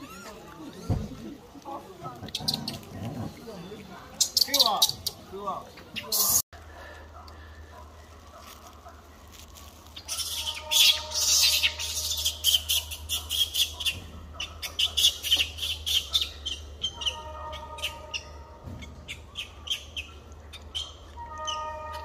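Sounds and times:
high-pitched chirps and squeaks: 4.2s - 5.3s, 5.9s - 6.4s, 10.0s - 22.0s.

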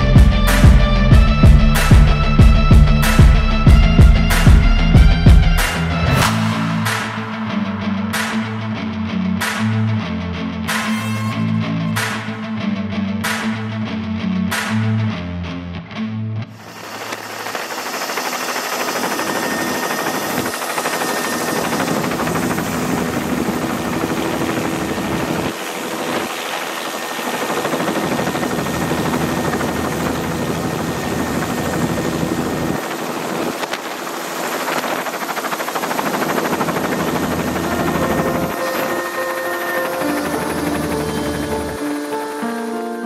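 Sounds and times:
helicopter rotor and engine: 16.5s - 43.0s.

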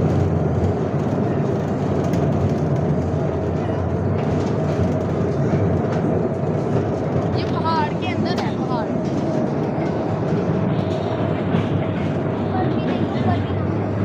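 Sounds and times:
train running low-pitched: 0.0s - 14.0s.

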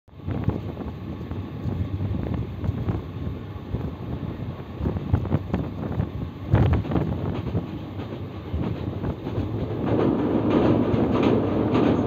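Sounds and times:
wind buffeting microphone: 0.1s - 12.0s
train wheels clacking on rails: 4.7s - 12.0s.

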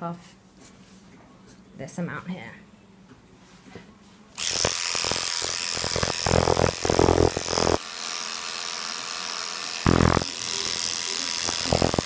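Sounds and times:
electric clipper buzzing: 4.4s - 12.0s.

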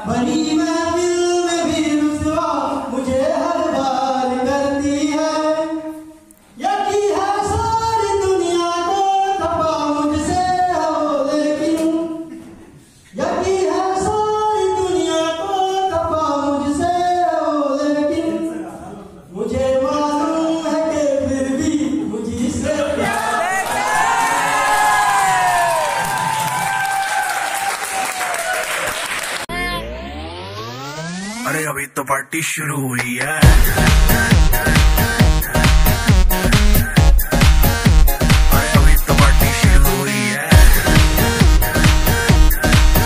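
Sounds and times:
man singing unaccompanied: 31.4s - 37.1s, 38.3s - 43.0s.

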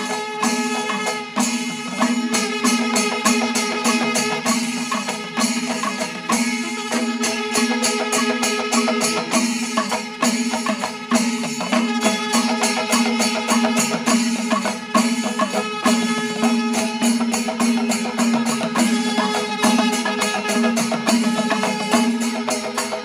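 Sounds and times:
brass cymbals: 0.0s - 23.0s
hand drums playing: 0.0s - 23.0s.

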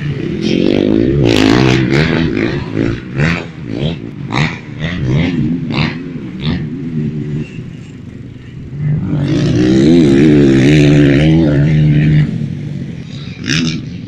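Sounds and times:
small motorcycle engine revving: 0.0s - 14.0s.

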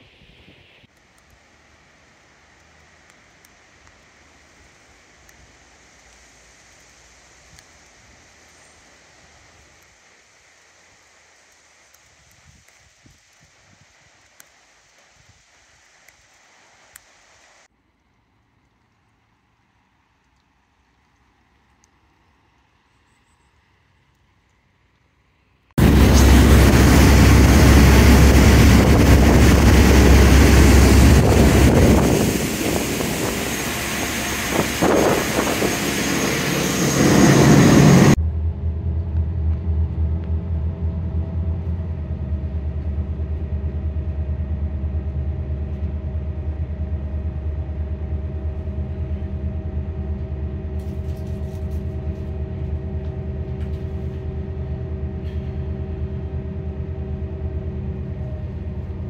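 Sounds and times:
rushing water: 25.8s - 38.2s
wind on microphone: 25.8s - 38.2s
motorboat engine: 25.8s - 59.0s.

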